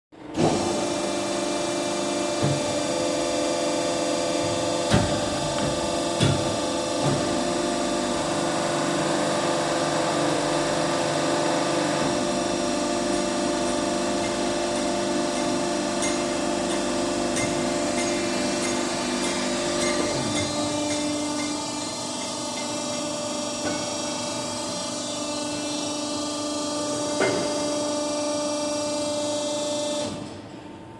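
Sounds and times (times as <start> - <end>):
hydraulic power unit hum and whine: 0.2 - 30.9
sharp metallic knocks: 14.2 - 21.6.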